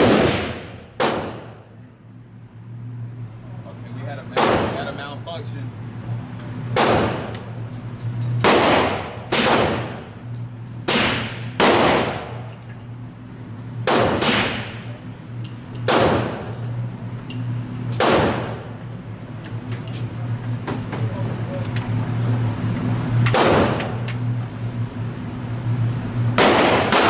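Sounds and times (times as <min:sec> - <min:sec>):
echoing gunshots: 0:00.0 - 0:01.6, 0:04.4 - 0:04.9, 0:06.7 - 0:07.3, 0:08.4 - 0:10.1, 0:10.9 - 0:12.4, 0:13.8 - 0:14.8, 0:15.9 - 0:16.5, 0:18.0 - 0:18.7, 0:23.3 - 0:24.0, 0:26.4 - 0:27.0
steady low hum: 0:00.0 - 0:27.0.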